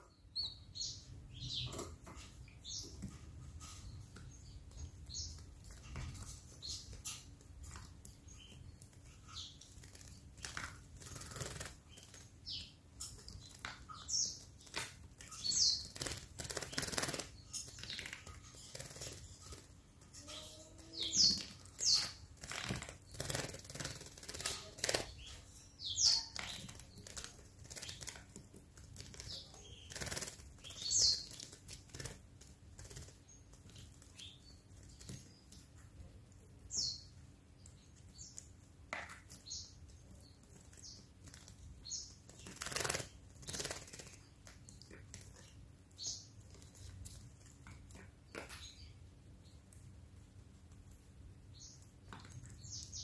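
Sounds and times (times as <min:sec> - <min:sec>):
bird wings fluttering and splashing: 0:05.2 - 0:19.8, 0:21.2 - 0:25.3, 0:26.2 - 0:35.7, 0:40.3 - 0:45.5.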